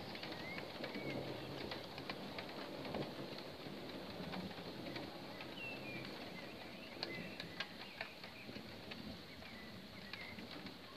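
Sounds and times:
birds chirping: 0:00.0 - 0:01.7, 0:04.6 - 0:10.9
faint ticks: 0:00.0 - 0:10.9.

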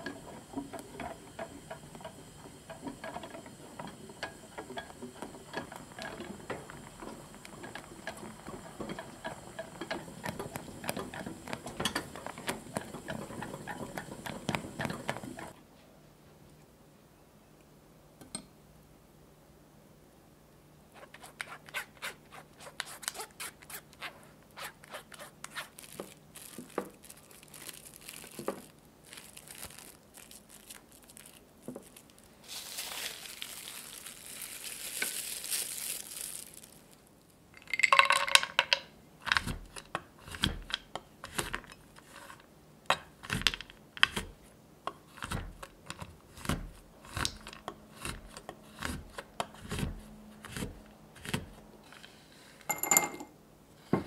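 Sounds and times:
plastic wrap crinkling: 0:21.0 - 0:37.4.

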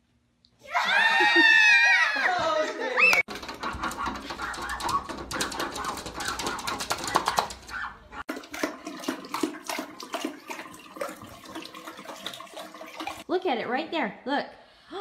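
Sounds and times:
dog scratching at glass door: 0:03.3 - 0:08.0
dogs lapping water: 0:03.3 - 0:13.3
tap water running: 0:03.3 - 0:13.3.

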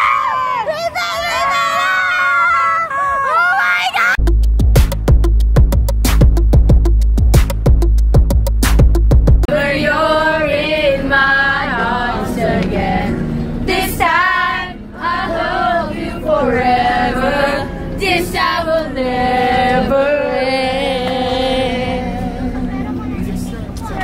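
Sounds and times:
group of young voices singing: 0:09.5 - 0:24.0.

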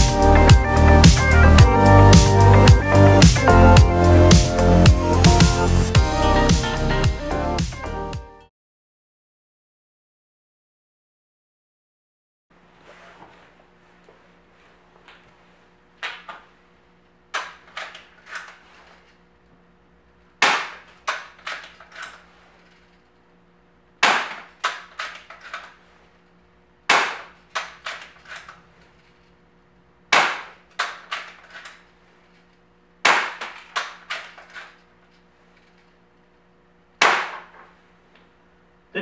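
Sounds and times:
air pistol shots cracking: 0:20.4 - 0:21.7, 0:24.0 - 0:25.2, 0:26.9 - 0:28.1, 0:30.1 - 0:31.4, 0:33.0 - 0:34.4, 0:37.0 - 0:37.6.

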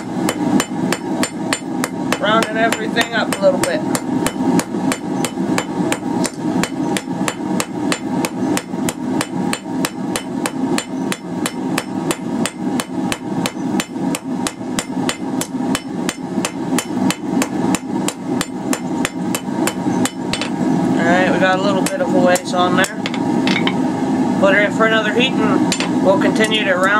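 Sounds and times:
hammer striking steel on anvil: 0:00.0 - 0:20.6.

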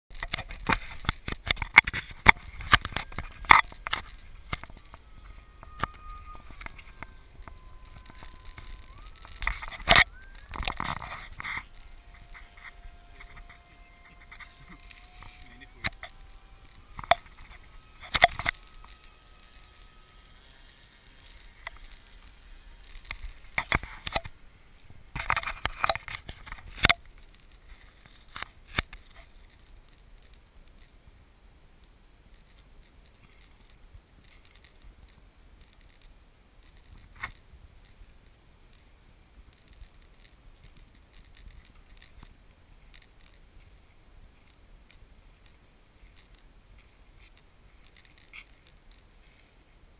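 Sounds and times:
camera being handled: 0:00.1 - 0:24.4, 0:25.1 - 0:31.0, 0:44.4 - 0:49.5.

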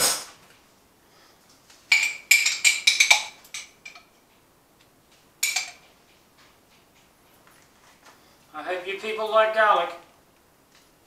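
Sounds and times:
teaspoon clinking against glass jar: 0:01.9 - 0:04.1, 0:05.4 - 0:05.8.

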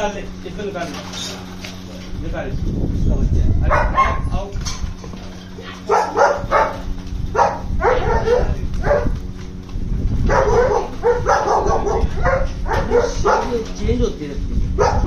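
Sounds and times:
dog barking: 0:03.6 - 0:04.4, 0:05.6 - 0:09.2, 0:10.2 - 0:13.7, 0:14.8 - 0:15.0.

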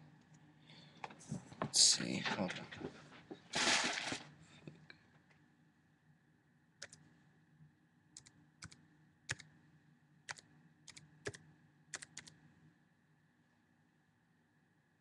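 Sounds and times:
low steady hum: 0:00.0 - 0:15.0
computer keys clicking: 0:06.8 - 0:07.0, 0:08.2 - 0:09.5, 0:10.3 - 0:12.4.

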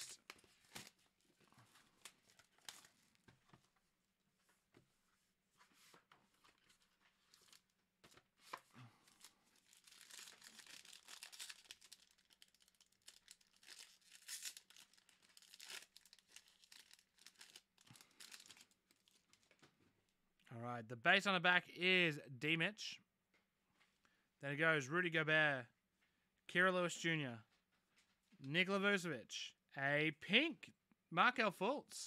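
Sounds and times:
plastic wrapping crinkling and tearing: 0:00.0 - 0:03.2, 0:06.5 - 0:07.8, 0:08.4 - 0:19.6.

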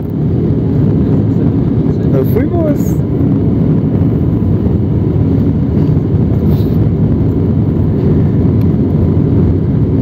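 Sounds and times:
jet engines at takeoff power: 0:00.0 - 0:10.0.

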